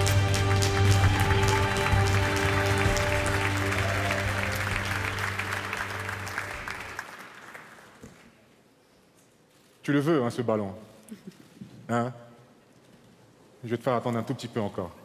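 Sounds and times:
music with long held notes: 0:00.0 - 0:07.0
audience applauding: 0:00.0 - 0:08.4.

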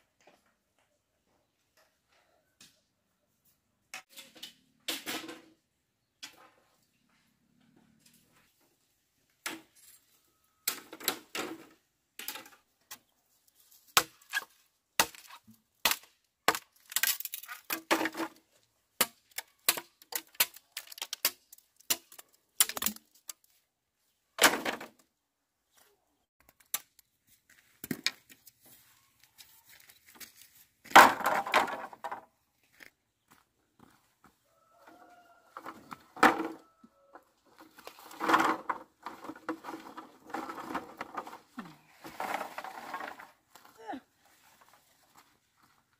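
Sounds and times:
bamboo poles clattering together: 0:03.9 - 0:06.8, 0:09.3 - 0:23.6, 0:24.4 - 0:25.0, 0:26.4 - 0:28.7, 0:29.4 - 0:32.3, 0:35.6 - 0:43.8.

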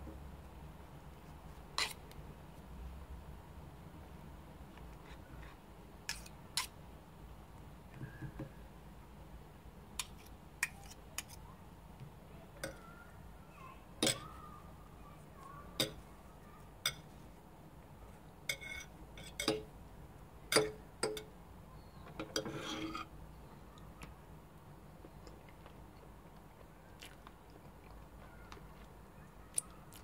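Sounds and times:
knife and fork clinking on plate: 0:18.5 - 0:19.6.

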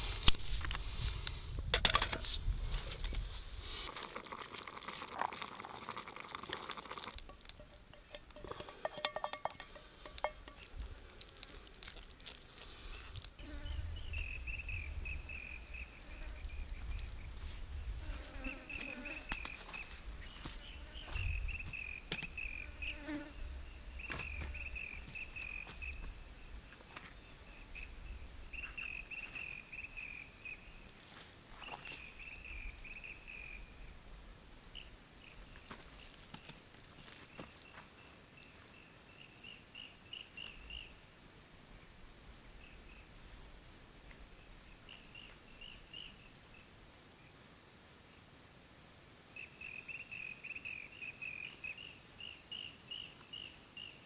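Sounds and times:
low wind rumble: 0:00.0 - 0:03.7, 0:13.5 - 0:18.2
insect chirping: 0:00.0 - 0:54.0
insect buzzing trill: 0:12.9 - 0:26.4.

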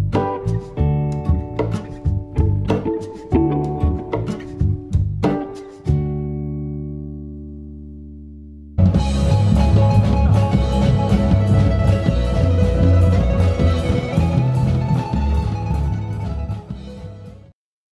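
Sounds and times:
upright bass line: 0:00.0 - 0:17.5
guitar: 0:00.0 - 0:17.6
drum kit with cymbals: 0:08.8 - 0:17.5.

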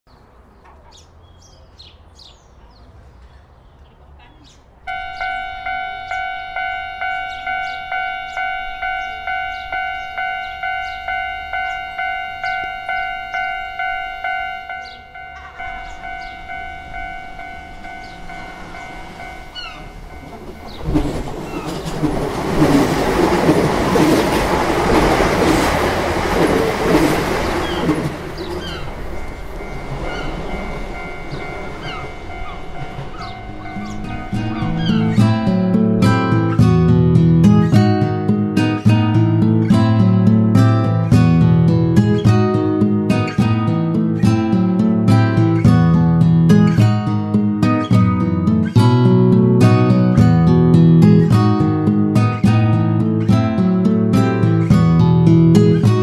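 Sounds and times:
birds chirping: 0:00.1 - 0:36.5
train passing: 0:04.6 - 0:47.3
level crossing warning bell: 0:04.9 - 0:56.0.

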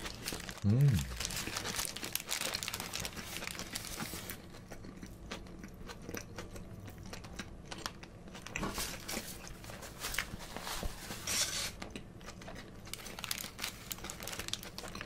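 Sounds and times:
close chewing: 0:00.0 - 0:10.4.

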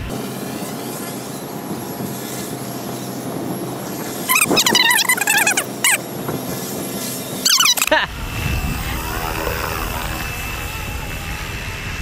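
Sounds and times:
helicopter motor and rotor hum: 0:00.0 - 0:12.0
high warbling chirps: 0:04.2 - 0:06.0, 0:07.4 - 0:08.0.

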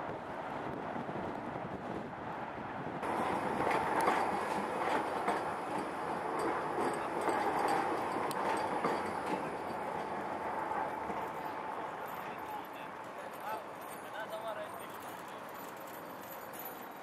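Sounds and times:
tram whine: 0:03.0 - 0:13.9
wheels clattering on rails: 0:03.0 - 0:17.0.

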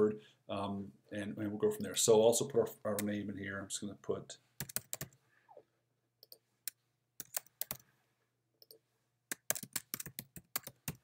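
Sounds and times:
typing on computer keyboard: 0:04.6 - 0:05.2, 0:07.2 - 0:07.8, 0:08.6 - 0:11.0.

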